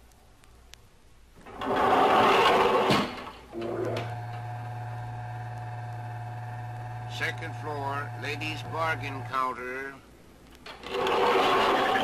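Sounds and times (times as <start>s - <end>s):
elevator door sliding shut: 1.5s - 4.4s
elevator car humming: 3.5s - 9.6s.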